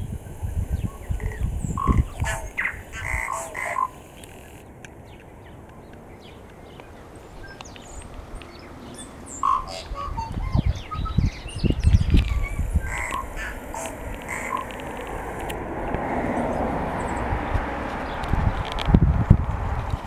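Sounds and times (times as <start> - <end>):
tui calling: 0.2 - 4.7, 5.8 - 15.5.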